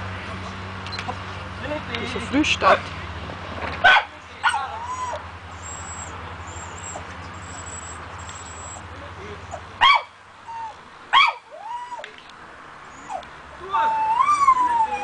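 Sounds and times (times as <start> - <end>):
dog barking: 3.8 - 4.6, 9.8 - 10.1
dog whining: 4.6 - 8.8, 12.9 - 15.0.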